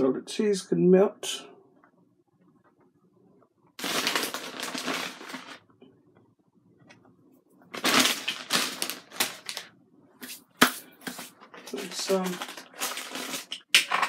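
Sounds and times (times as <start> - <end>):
food packaging crinkling: 3.8 - 5.6, 7.7 - 9.7, 11.2 - 13.9.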